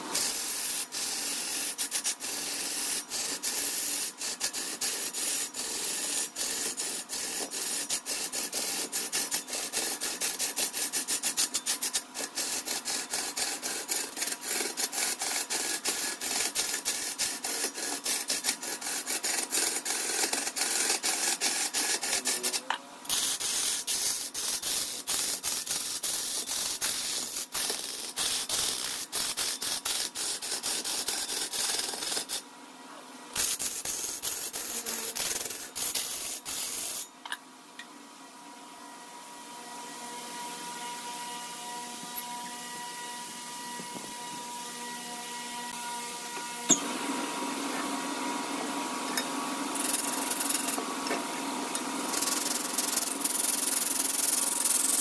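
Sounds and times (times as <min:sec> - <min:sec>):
lathe tool scraping wood: 0:00.1 - 0:32.4, 0:33.4 - 0:37.0.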